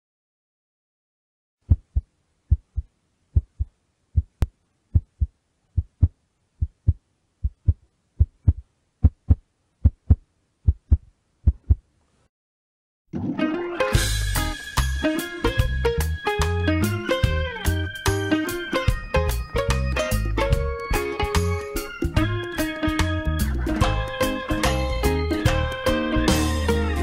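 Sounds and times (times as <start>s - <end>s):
heartbeat thumps: 1.6s - 11.8s
guitar music: 13.2s - 27.0s.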